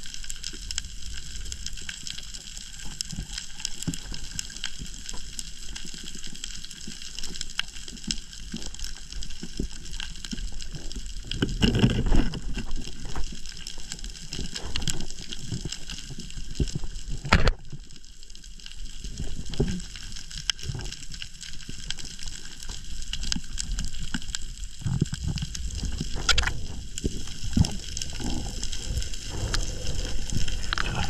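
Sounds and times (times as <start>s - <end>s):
crackle of small clicks: 0.0s - 31.0s
low rumble of moving water: 0.0s - 31.0s
rush of water: 23.6s - 31.0s.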